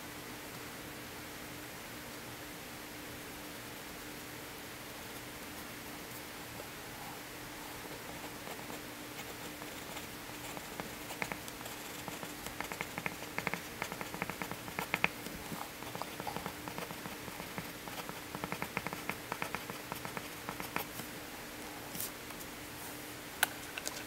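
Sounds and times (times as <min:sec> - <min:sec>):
faint steady hum: 0:00.0 - 0:24.0
pencil writing on paper: 0:08.1 - 0:21.0.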